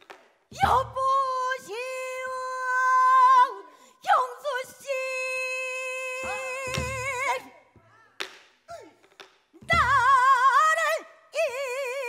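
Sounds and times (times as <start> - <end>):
woman singing long wailing notes: 0.6 - 7.5, 9.6 - 12.0.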